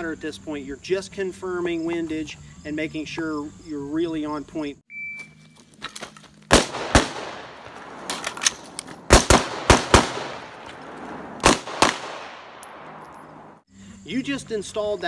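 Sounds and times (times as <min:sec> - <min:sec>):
short beep: 0:04.9 - 0:05.6
pistol shots: 0:06.5 - 0:13.5
rifle gunshots with echo: 0:06.5 - 0:13.6.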